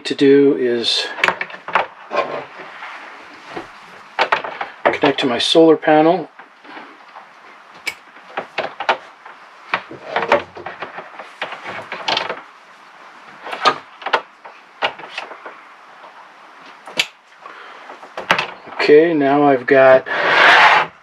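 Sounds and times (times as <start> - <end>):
cables rustling: 0.0 - 21.0
clicks and knocks: 1.2 - 2.5, 3.5 - 5.2, 6.3 - 12.5, 13.3 - 17.2, 17.8 - 18.8.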